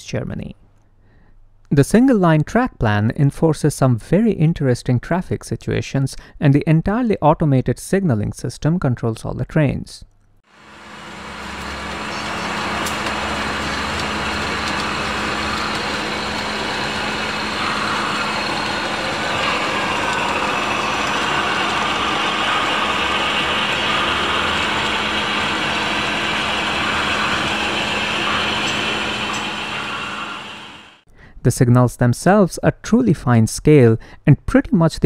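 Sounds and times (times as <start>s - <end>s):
constant low hum: 10.1s - 31.0s
model train diesel engine drone: 10.5s - 31.0s.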